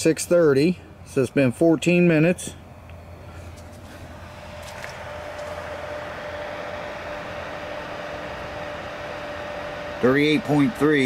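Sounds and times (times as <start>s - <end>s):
cooling fan whirring hum: 0.0s - 11.0s.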